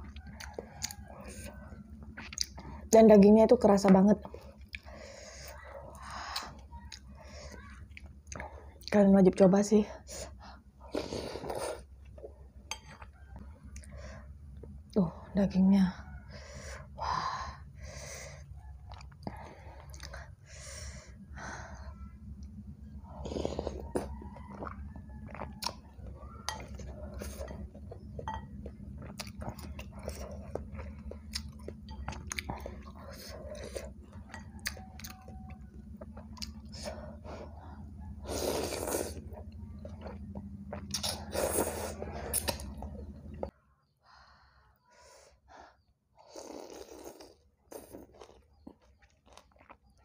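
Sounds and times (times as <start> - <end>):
wet chewing and mouth smacks: 0.0 - 2.9, 3.8 - 5.0, 18.6 - 20.4, 23.6 - 43.6, 46.5 - 50.0
steady low hum: 0.0 - 46.2
slurping noodles: 38.2 - 39.4, 40.9 - 42.6.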